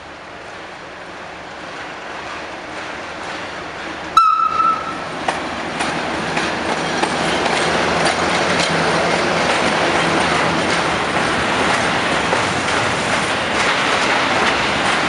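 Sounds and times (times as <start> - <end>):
diesel locomotive engine running: 0.0 - 15.0
train wheels clacking over rail joints: 0.4 - 15.0
locomotive horn blast: 4.2 - 5.1.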